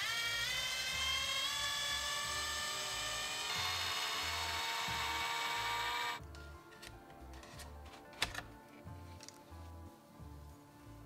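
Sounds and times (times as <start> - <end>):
electric screwdriver whining: 0.0 - 6.2.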